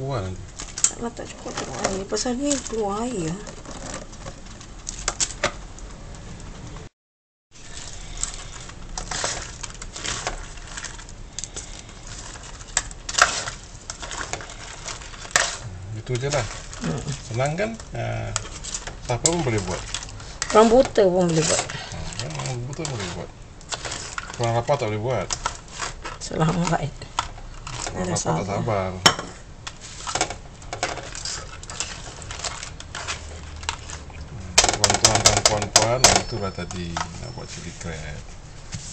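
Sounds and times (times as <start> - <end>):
spatula scraping a wok: 7.6 - 34.1.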